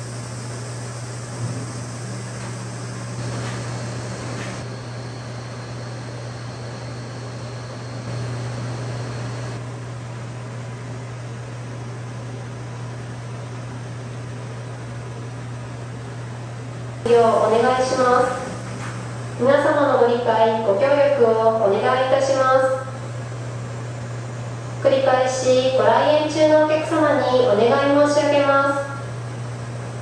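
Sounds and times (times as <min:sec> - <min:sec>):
faint high whine: 0:00.0 - 0:10.1, 0:17.0 - 0:30.0
ventilation fan humming: 0:00.0 - 0:30.0.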